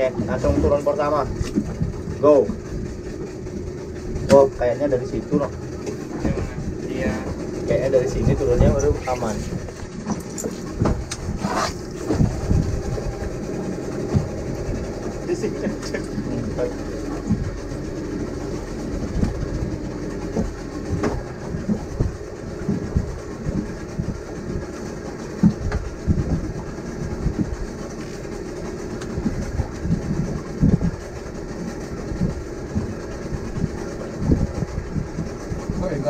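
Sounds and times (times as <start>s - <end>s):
low rumble: 0.0s - 36.0s
water slapping boat hull: 0.0s - 36.0s
wind buffeting microphone: 0.0s - 36.0s.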